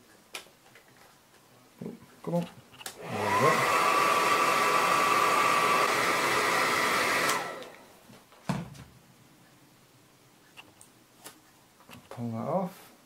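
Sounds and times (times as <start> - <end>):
electric blower motor whine: 3.0 - 7.8.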